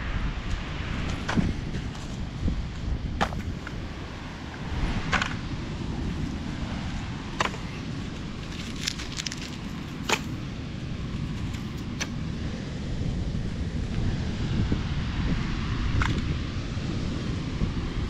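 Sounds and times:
low wind rumble on microphone: 0:00.0 - 0:18.0
sharp clicks of litter picking: 0:11.4 - 0:12.2.

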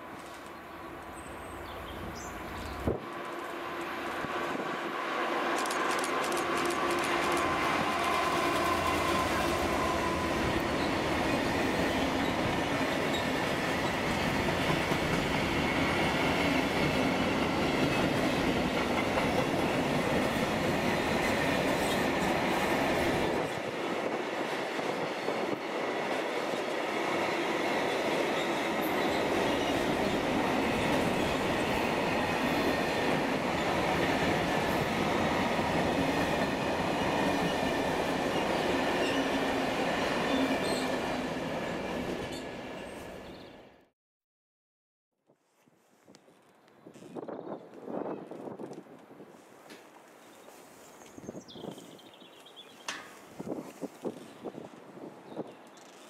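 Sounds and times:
train wagons rumbling and clacking: 0:00.0 - 0:43.3.

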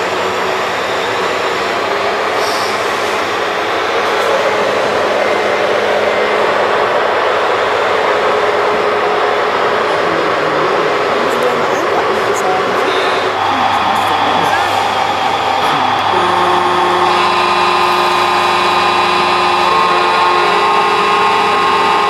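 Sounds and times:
model trucks motors whirring: 0:12.9 - 0:22.0.

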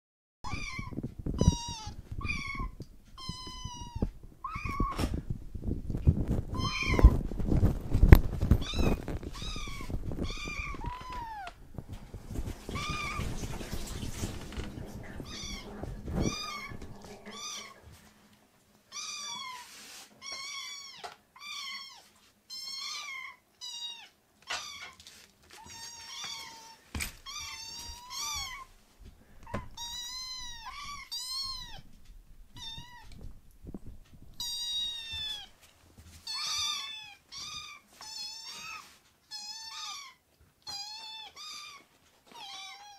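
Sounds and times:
kittens meowing: 0:00.5 - 0:05.1, 0:06.6 - 0:07.2, 0:08.6 - 0:11.6, 0:15.0 - 0:17.8, 0:25.6 - 0:28.7, 0:29.4 - 0:31.8, 0:32.6 - 0:33.2, 0:34.4 - 0:35.5, 0:36.3 - 0:42.9.

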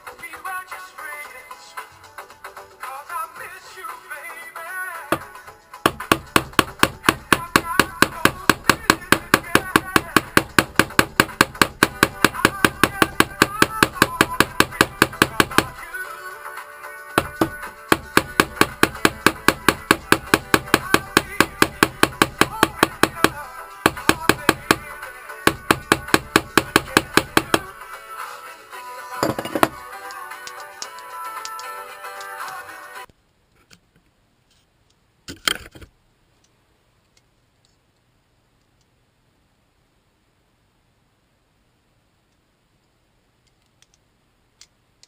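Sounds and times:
small hammer striking wire on anvil: 0:05.9 - 0:15.8, 0:17.2 - 0:24.9, 0:25.5 - 0:27.7.

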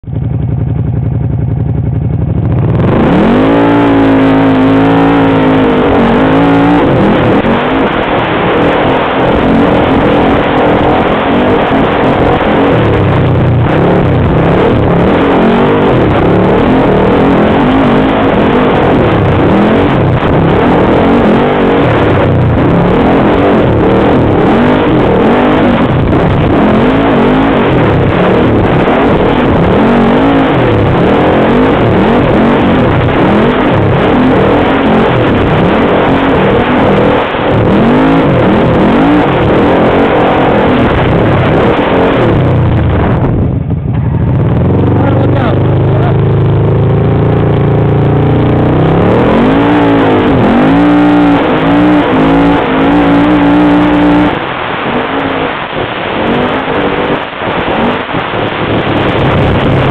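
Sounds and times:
off-road vehicle engine revving: 0:00.0 - 0:59.9
steady rushing noise: 0:00.0 - 0:59.9.

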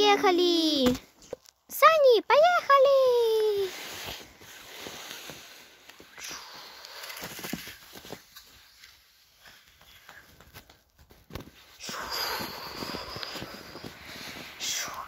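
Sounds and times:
toy sleigh scraping across snow: 0:03.6 - 0:09.7, 0:11.6 - 0:15.0.

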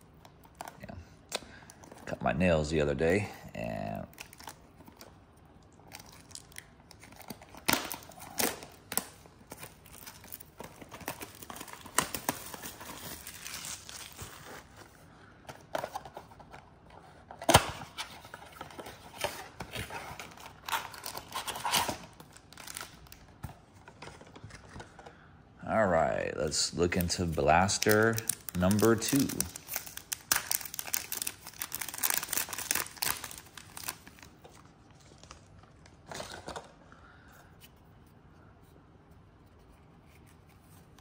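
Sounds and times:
foil packs crinkling: 0:05.8 - 0:15.2, 0:18.2 - 0:25.2, 0:26.5 - 0:36.8.

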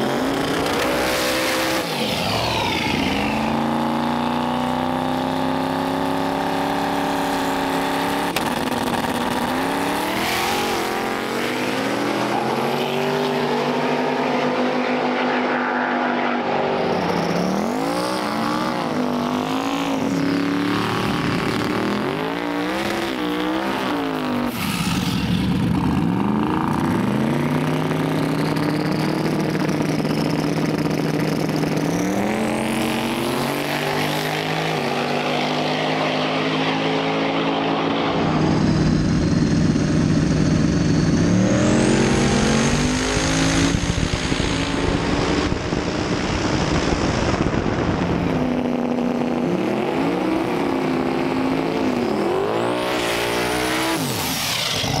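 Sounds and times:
drag race car engines revving: 0:00.0 - 0:55.0.

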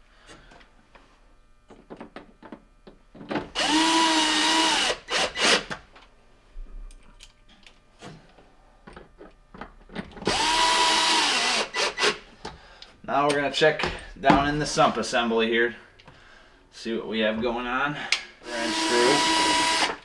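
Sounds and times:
cordless drill motor whine: 0:03.5 - 0:05.7, 0:10.2 - 0:12.2, 0:18.4 - 0:20.0.

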